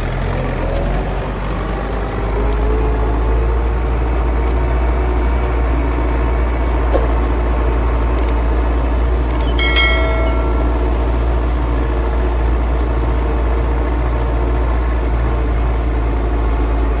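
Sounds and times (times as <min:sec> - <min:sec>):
tractor diesel engine under load: 0:00.0 - 0:17.0
bright ringing chime: 0:09.4 - 0:11.4.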